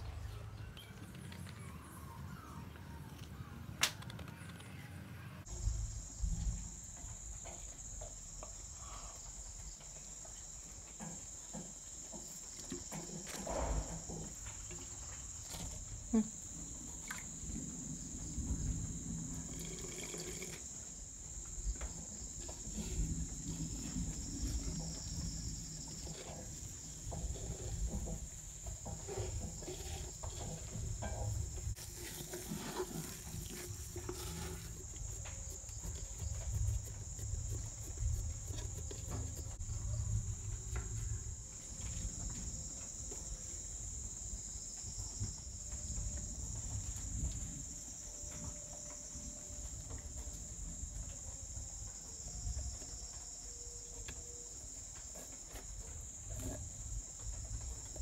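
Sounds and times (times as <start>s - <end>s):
crickets chirring: 5.4s - 58.0s
hands mixing flour in clay pot: 29.0s - 39.7s.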